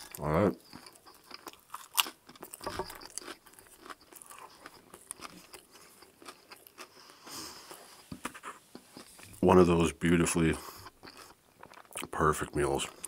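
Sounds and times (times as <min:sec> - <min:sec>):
chewing potato chip crunches: 0:00.0 - 0:07.1.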